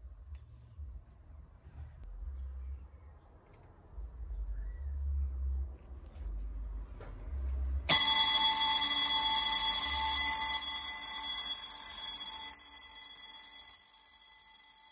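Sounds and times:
electric fire bell ringing: 7.9s - 14.9s.

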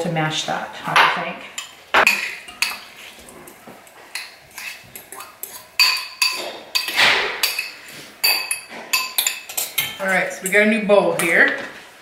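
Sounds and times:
metal spoon scraping ceramic bowl: 1.6s - 10.6s.

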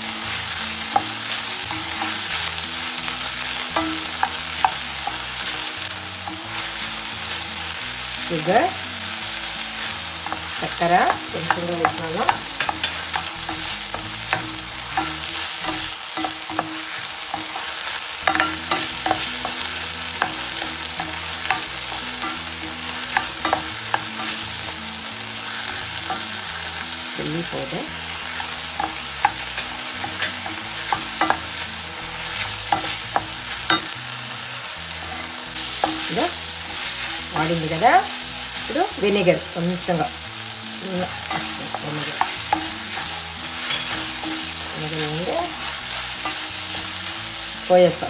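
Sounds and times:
vegetables sizzling in oil: 0.0s - 48.0s
spatula scraping and tapping pan: 9.5s - 26.9s, 27.5s - 34.0s, 41.0s - 47.5s.

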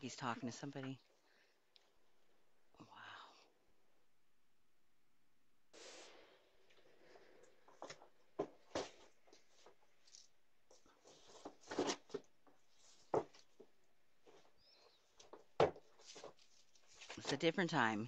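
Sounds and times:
parcel scuffs and rustles: 7.7s - 17.6s.

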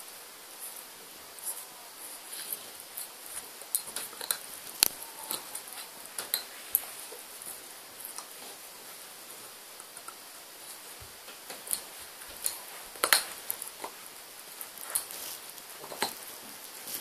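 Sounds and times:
puppy gnawing a chew bone: 2.9s - 8.6s, 9.8s - 17.0s.

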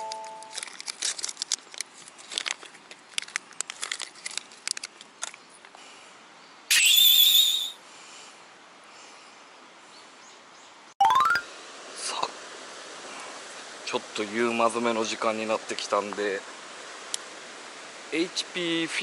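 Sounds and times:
plastic packet crinkling: 0.4s - 5.4s
warbling whistle-like tone: 6.7s - 7.8s.

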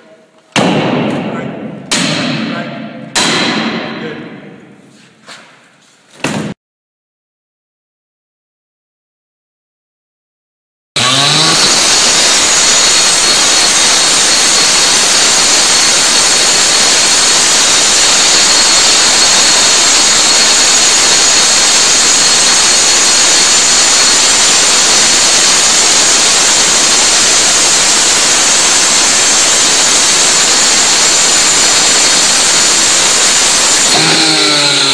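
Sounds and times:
cut-off saw cutting metal: 11.0s - 34.9s.

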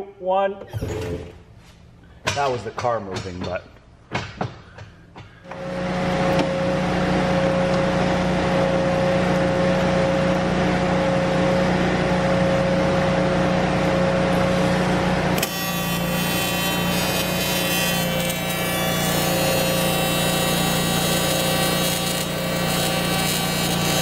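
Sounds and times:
welding arc buzzing hiss: 14.4s - 24.0s.

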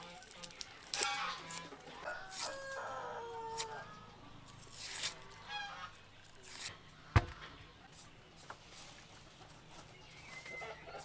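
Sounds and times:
knife scraping onion skin: 0.0s - 2.7s, 3.5s - 3.8s, 4.5s - 5.5s, 6.2s - 6.7s
chicken clucking: 7.4s - 11.0s.

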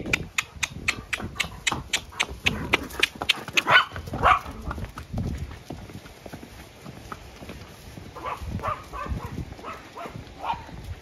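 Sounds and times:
horse hooves on concrete: 0.0s - 11.0s
small dog barking: 3.6s - 4.6s, 8.2s - 10.7s.

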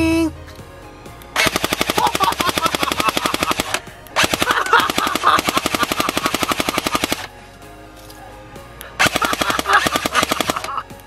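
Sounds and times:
airsoft gun automatic fire: 1.4s - 7.3s, 9.0s - 10.8s.

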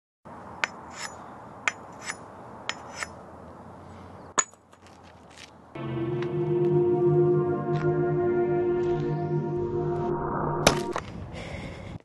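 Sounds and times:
metallic scrape: 0.7s - 3.2s.

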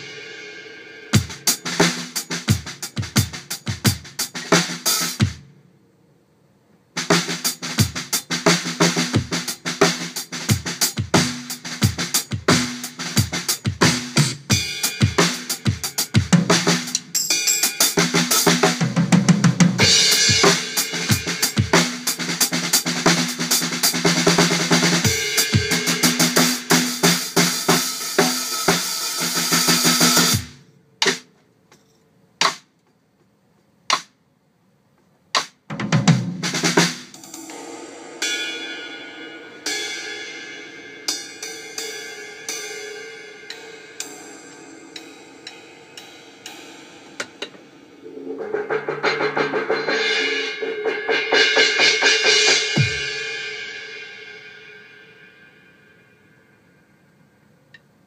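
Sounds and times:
cymbal wash: 0.0s - 2.4s, 19.8s - 30.6s, 37.1s - 57.4s
drum kit playing: 0.0s - 5.6s, 6.9s - 31.4s, 32.4s - 32.8s, 33.8s - 34.3s, 35.1s - 54.8s.

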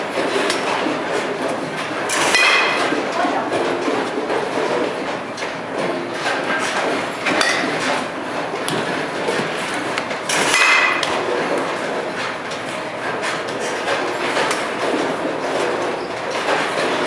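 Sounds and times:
steady mechanical clatter: 0.0s - 17.0s.

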